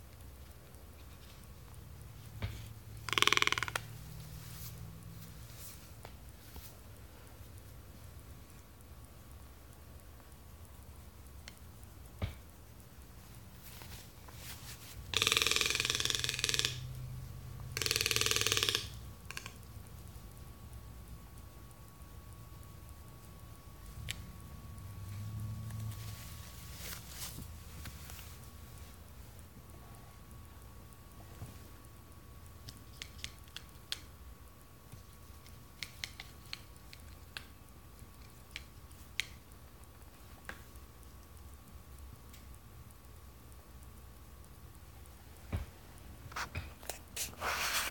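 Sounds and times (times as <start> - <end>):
toucan rattling croaking calls: 3.0 - 4.1, 15.1 - 16.9, 17.8 - 19.6.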